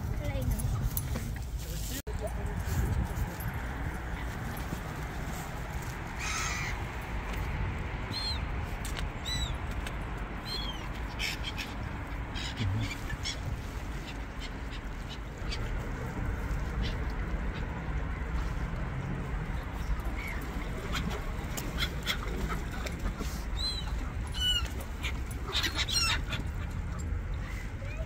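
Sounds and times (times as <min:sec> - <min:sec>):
birds calling in high cries: 0:06.2 - 0:06.8, 0:08.1 - 0:08.5, 0:09.2 - 0:09.6, 0:10.4 - 0:15.7, 0:19.9 - 0:28.0.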